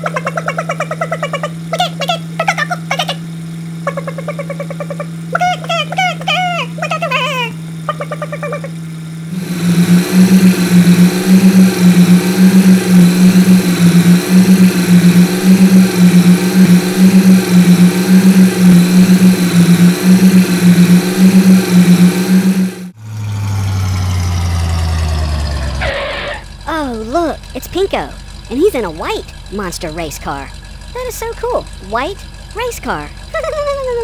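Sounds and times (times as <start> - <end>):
loud throbbing engine: 0.0 - 34.0
lower engine note stepping down: 8.6 - 34.0.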